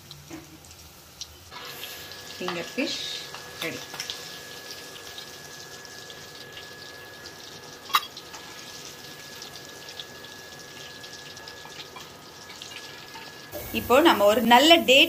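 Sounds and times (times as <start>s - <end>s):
food deep-frying in hot oil: 0.0s - 15.0s.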